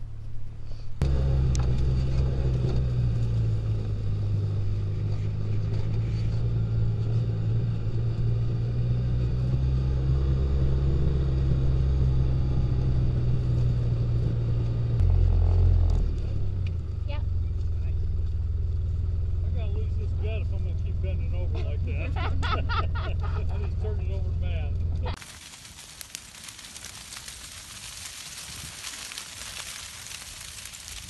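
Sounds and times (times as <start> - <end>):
utility vehicle engine humming: 0.0 - 25.5.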